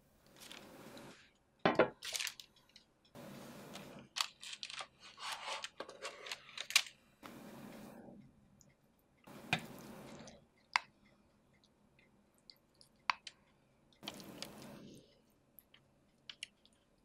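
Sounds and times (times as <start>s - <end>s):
baking paper rustling: 3.7s - 6.8s.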